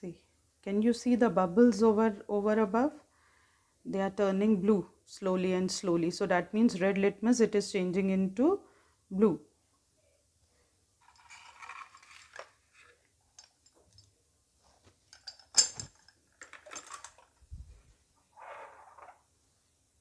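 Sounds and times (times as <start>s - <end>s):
glass test tubes clattering: 11.0s - 14.1s, 15.1s - 17.4s.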